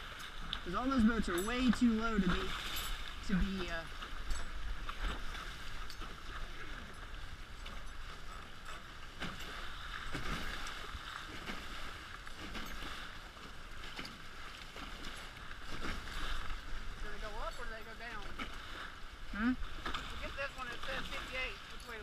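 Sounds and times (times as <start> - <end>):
water rushing past hulls: 0.0 - 22.0.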